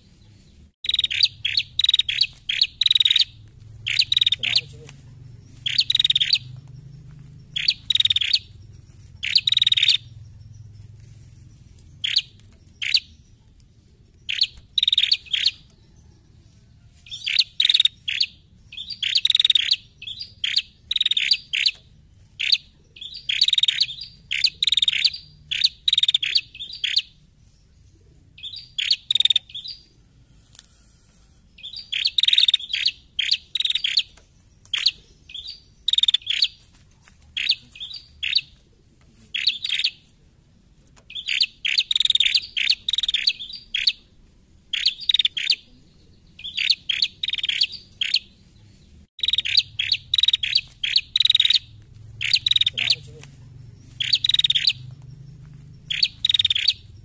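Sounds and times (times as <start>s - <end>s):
bird high sharp chirps: 0.8s - 4.9s, 5.5s - 11.0s, 11.8s - 13.4s, 14.2s - 16.0s, 17.0s - 27.2s, 28.4s - 29.9s, 31.5s - 36.6s, 37.4s - 38.6s, 39.4s - 40.0s, 41.1s - 44.1s, 44.7s - 45.7s, 46.4s - 48.4s, 49.2s - 53.2s, 53.9s - 55.0s, 55.8s - 57.0s.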